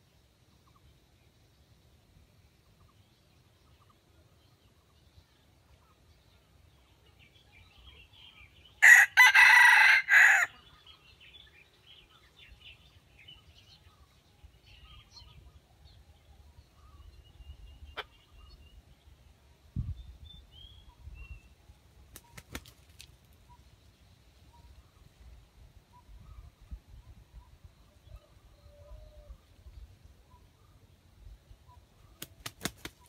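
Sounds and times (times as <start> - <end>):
rooster crowing: 8.8 - 10.6.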